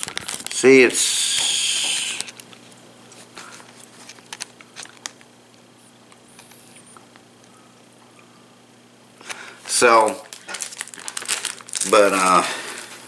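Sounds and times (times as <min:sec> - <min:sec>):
plastic wrapper crinkling: 0:00.0 - 0:05.3, 0:09.6 - 0:13.0.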